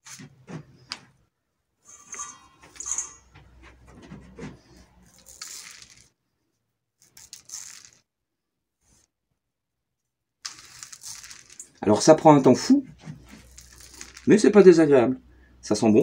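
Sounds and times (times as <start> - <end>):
bits falling onto cardboard: 5.0 - 6.1, 7.0 - 8.0, 10.4 - 11.8, 13.3 - 14.4.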